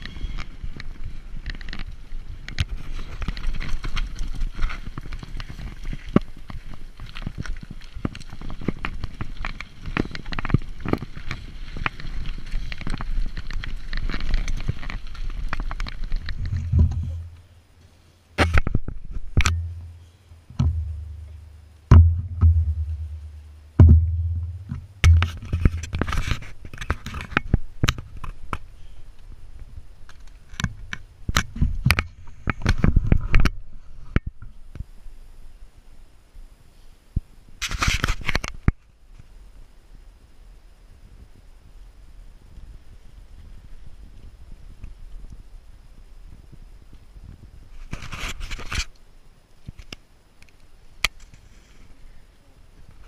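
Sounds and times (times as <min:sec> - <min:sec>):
bike rattling on dirt trail: 0:00.0 - 0:17.6.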